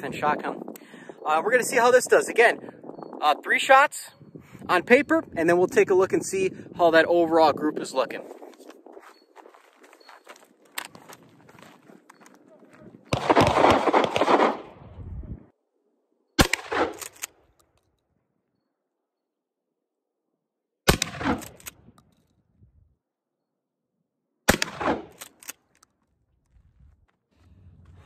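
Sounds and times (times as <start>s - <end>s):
shotgun shots: 13.1s - 14.8s, 16.4s - 17.3s, 20.9s - 21.8s, 24.5s - 25.4s.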